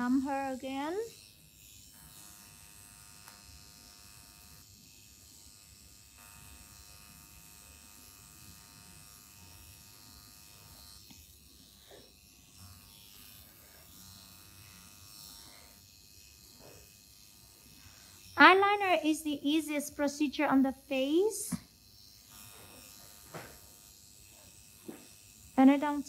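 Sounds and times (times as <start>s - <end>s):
small motor buzzing: 0.0s - 26.0s.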